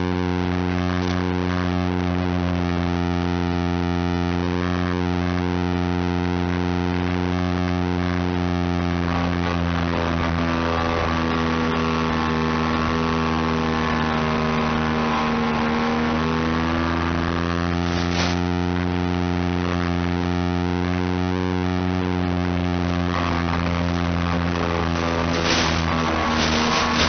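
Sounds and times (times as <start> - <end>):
electric motor and propeller droning: 0.0 - 27.0
brief crackle: 17.4 - 19.2, 23.2 - 27.0.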